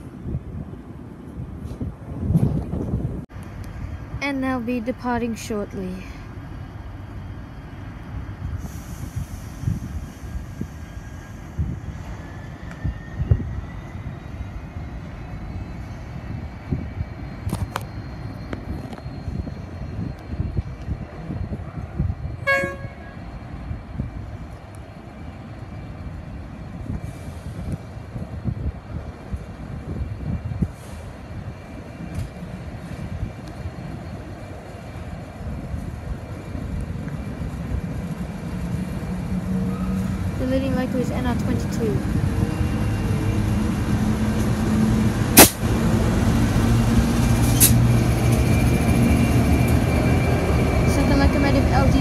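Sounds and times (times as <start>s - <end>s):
diesel train rumbling: 0.0s - 52.0s
high-pitched train horn toot: 22.4s - 23.2s.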